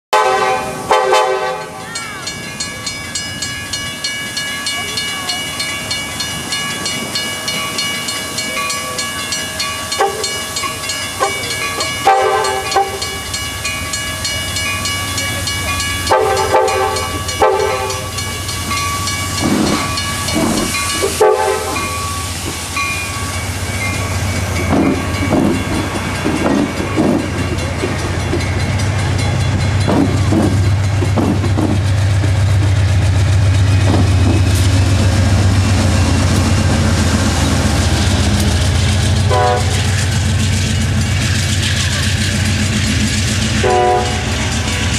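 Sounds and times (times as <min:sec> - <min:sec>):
train air horn blasts: 0:00.1 - 0:01.8, 0:12.0 - 0:13.0, 0:16.0 - 0:18.1, 0:21.0 - 0:22.0, 0:39.2 - 0:39.9, 0:43.6 - 0:44.4
train bell ringing: 0:00.2 - 0:44.9
train rumble: 0:00.2 - 0:44.9.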